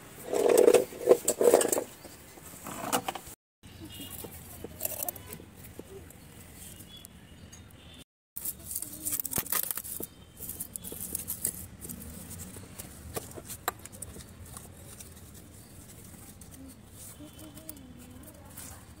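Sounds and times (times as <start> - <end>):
dry twigs rustling and crackling: 8.4 - 19.0.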